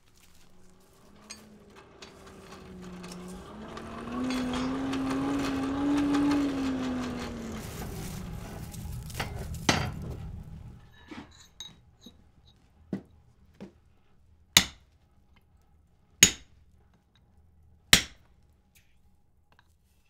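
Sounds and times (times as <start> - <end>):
hammer striking iron on anvil: 14.6 - 14.8, 16.2 - 16.5, 18.0 - 18.2.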